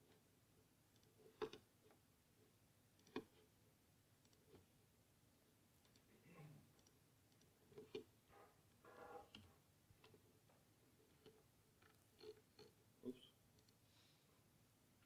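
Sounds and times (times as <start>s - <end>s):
faint clicks and taps: 0.9s - 2.0s, 2.9s - 3.5s, 4.2s - 4.7s, 5.8s - 13.8s.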